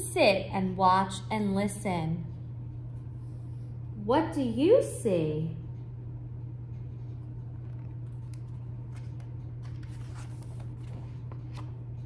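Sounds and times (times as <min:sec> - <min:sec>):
low room hum: 0:00.0 - 0:12.0
book pages rustling: 0:07.2 - 0:12.0.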